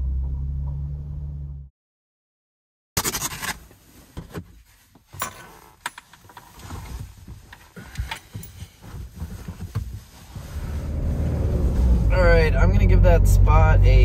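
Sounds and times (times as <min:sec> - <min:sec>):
clothing and seat rustling: 0:03.6 - 0:12.4.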